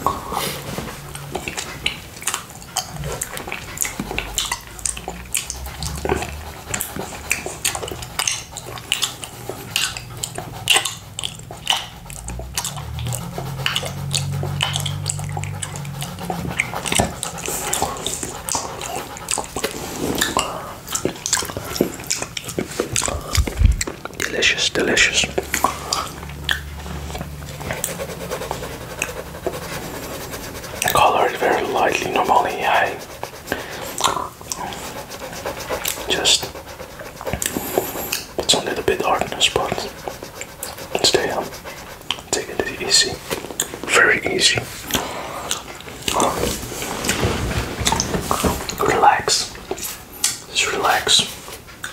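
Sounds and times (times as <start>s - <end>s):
wet licking and lip smacking: 0.0s - 47.2s.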